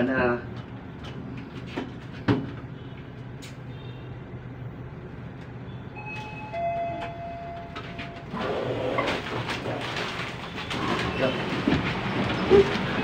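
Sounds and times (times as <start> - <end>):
elevator low hum: 0.5 - 13.0.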